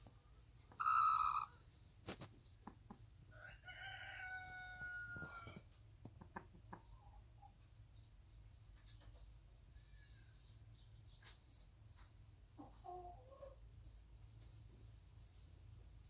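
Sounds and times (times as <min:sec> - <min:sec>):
chicken squawking: 0:00.7 - 0:01.6.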